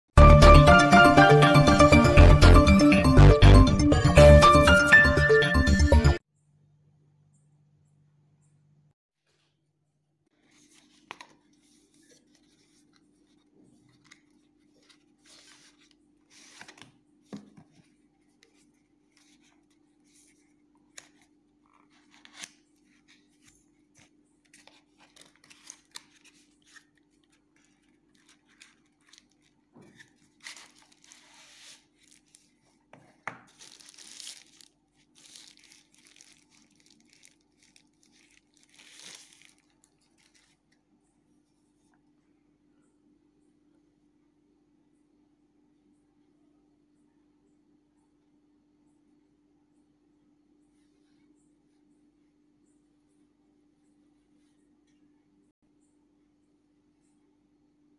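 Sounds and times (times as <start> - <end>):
paper sleeve unwrapping: 21.0 - 40.6
cardboard box rustling and crinkling: 27.6 - 40.6.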